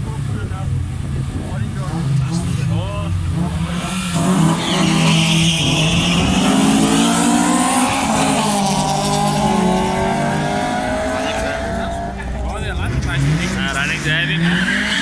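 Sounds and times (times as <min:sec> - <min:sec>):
racing car engine revving: 0:00.0 - 0:15.0
tyre squeal: 0:04.4 - 0:06.6.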